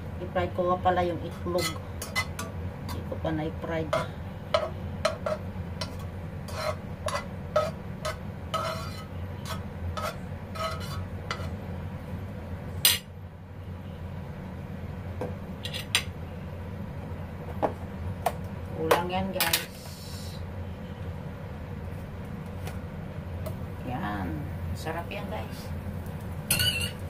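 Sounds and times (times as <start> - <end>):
low steady hum: 0.0 - 27.0
metal spoon scraping wok: 1.2 - 3.1, 3.8 - 11.6, 26.5 - 27.0.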